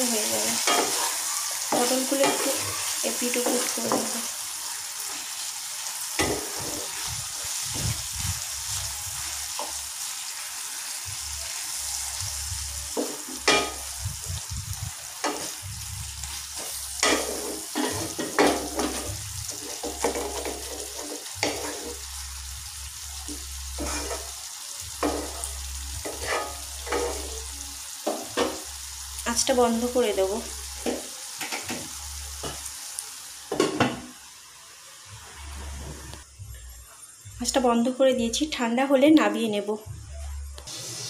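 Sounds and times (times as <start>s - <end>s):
food sizzling in a pan: 0.0s - 39.8s, 40.6s - 41.0s
spatula scraping a pan: 16.2s - 22.1s, 23.8s - 24.3s, 26.0s - 27.4s.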